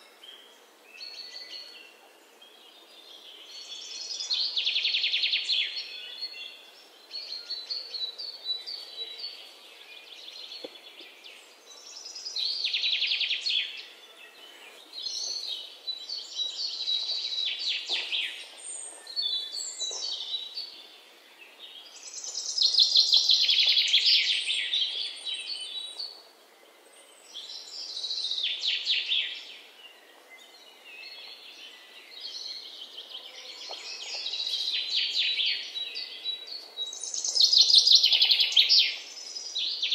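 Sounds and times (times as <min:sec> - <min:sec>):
birds chirping and trilling: 0:00.0 - 0:39.9.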